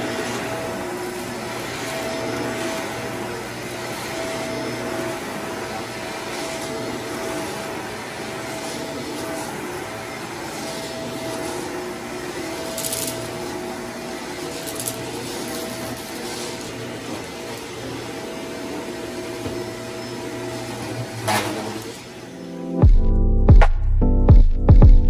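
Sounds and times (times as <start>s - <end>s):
grit crackling up vacuum wand: 0.0s - 18.2s
vacuum cleaner running on carpet: 0.0s - 22.6s.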